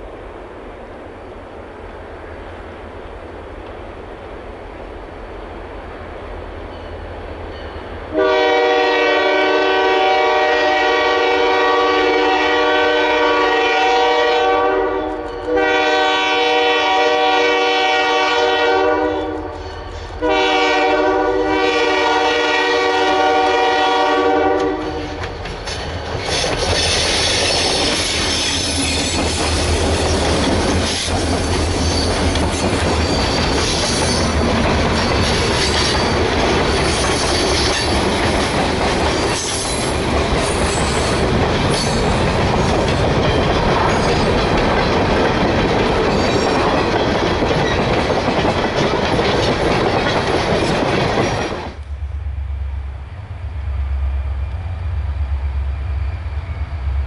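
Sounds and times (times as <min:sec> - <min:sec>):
locomotive air horn blasts: 0:08.1 - 0:19.6, 0:20.2 - 0:25.2
wheels clicking over rail joints: 0:24.6 - 0:51.9.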